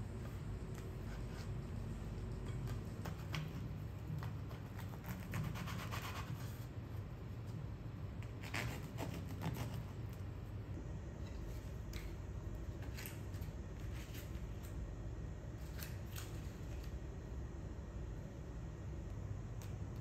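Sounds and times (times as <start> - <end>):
low steady hum: 0.0 - 20.0
knife scraping bread crust: 2.5 - 6.7, 8.2 - 10.0.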